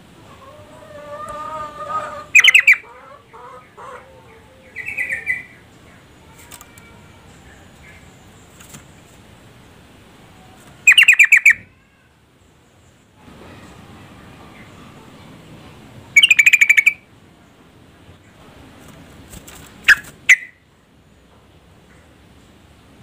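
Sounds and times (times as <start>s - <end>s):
bird chattering calls: 2.1s - 3.9s, 4.7s - 6.4s, 10.8s - 11.7s, 16.1s - 17.1s, 19.8s - 20.6s.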